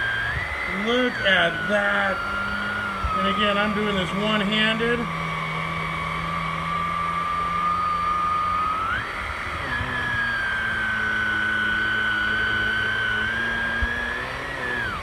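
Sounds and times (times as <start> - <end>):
vacuum cleaner motor whine: 0.0 - 15.0.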